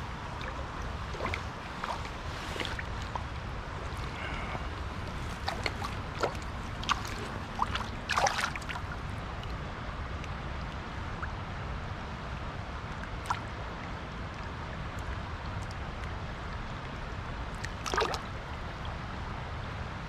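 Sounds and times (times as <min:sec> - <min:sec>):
river flowing: 0:00.0 - 0:20.0
wind: 0:00.0 - 0:20.0
fish splashing in landing net: 0:05.1 - 0:08.8.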